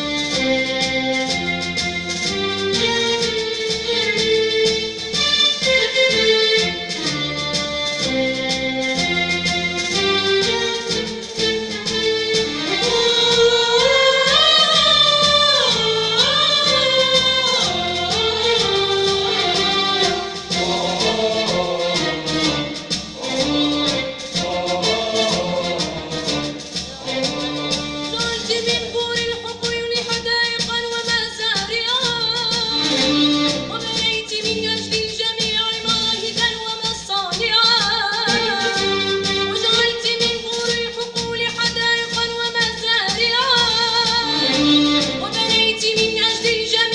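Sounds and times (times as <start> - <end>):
instrumental accompaniment: 0.0 - 46.9
choir singing: 10.8 - 28.2, 44.2 - 45.6.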